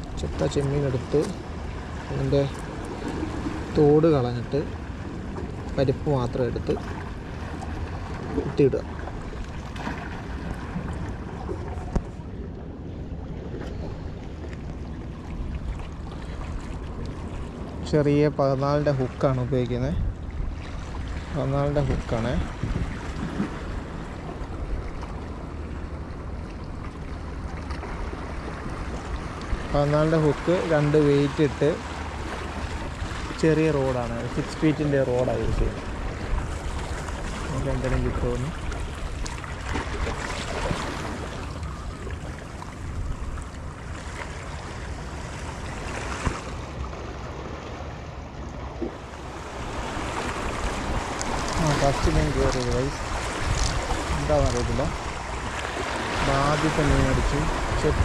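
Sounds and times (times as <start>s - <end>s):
sea waves against rocks: 0.0s - 58.0s
wind rumbling on microphone: 0.0s - 58.0s
waves washing against rocks: 49.0s - 58.0s.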